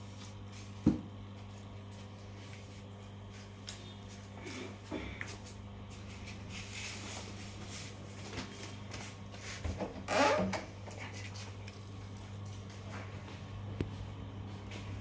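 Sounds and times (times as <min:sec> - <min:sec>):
low electrical hum: 0:00.0 - 0:15.0
scuff against aquarium: 0:00.2 - 0:09.9.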